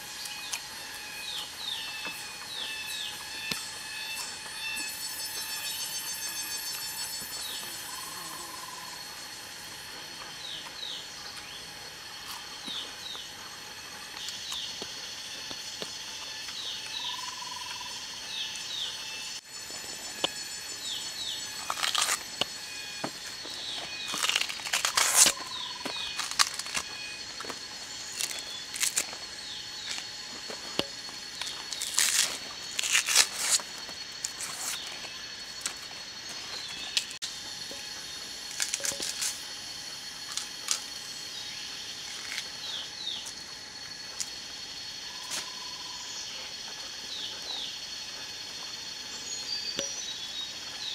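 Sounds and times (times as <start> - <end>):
forest insects droning: 0.0 - 50.9
dry plant material crackling: 21.6 - 22.2, 23.3 - 35.0.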